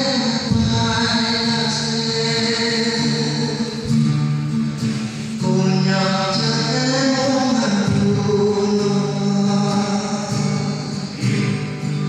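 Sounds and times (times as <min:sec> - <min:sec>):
man singing into a microphone: 0:00.0 - 0:04.2, 0:05.1 - 0:12.0.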